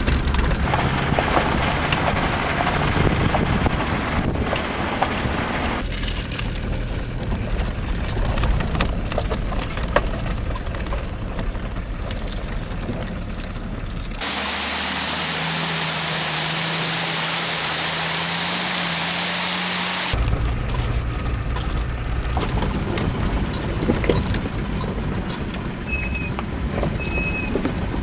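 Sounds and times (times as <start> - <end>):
engine and tyre rumble: 0.0 - 28.0
water pouring from waterfall: 14.2 - 20.2.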